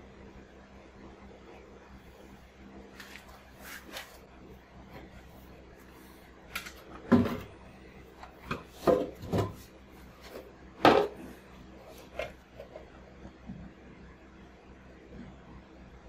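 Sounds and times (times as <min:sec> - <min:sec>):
plywood sheets rubbing: 0:02.9 - 0:06.3.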